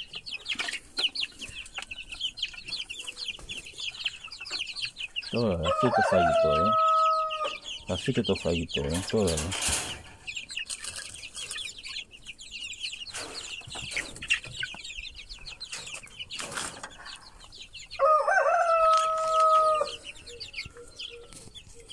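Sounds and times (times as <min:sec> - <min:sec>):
chicks peeping: 0:00.0 - 0:21.9
rooster crowing: 0:05.6 - 0:07.7, 0:18.0 - 0:20.0.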